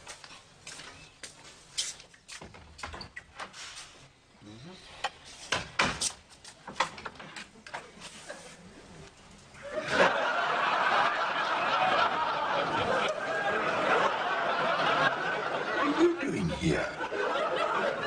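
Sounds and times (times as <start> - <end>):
studio audience laughing: 9.6 - 18.0.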